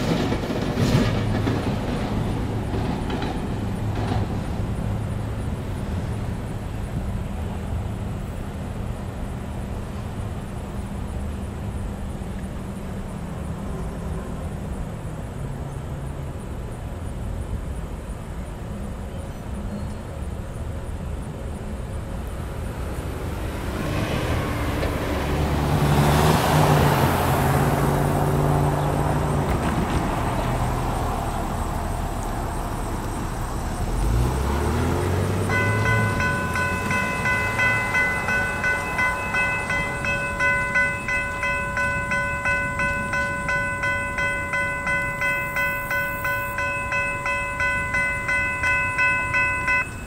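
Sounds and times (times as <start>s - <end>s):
steady traffic hum: 0.0s - 50.0s
car passing: 22.5s - 50.0s.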